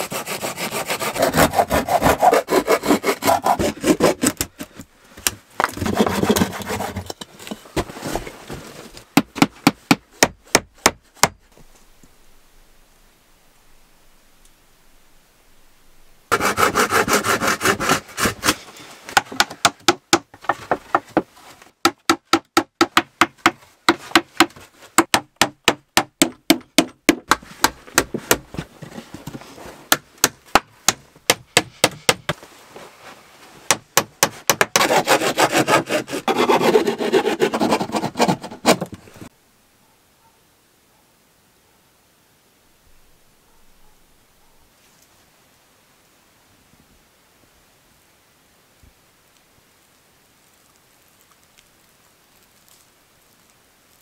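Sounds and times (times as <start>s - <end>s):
hand saw cutting wood: 0.0s - 4.8s, 5.6s - 7.5s, 16.3s - 19.7s, 33.7s - 39.3s.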